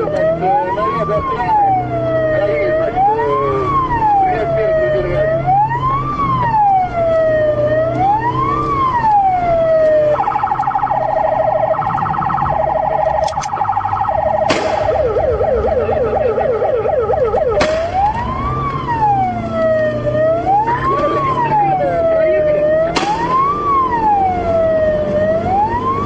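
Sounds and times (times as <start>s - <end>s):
police siren: 0.0s - 26.0s
low engine drone: 6.6s - 26.0s.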